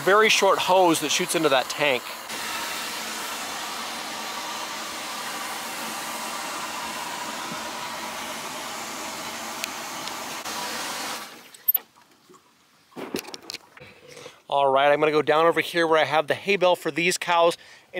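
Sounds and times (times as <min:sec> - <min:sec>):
water rushing from hose into tank: 0:00.0 - 0:11.8.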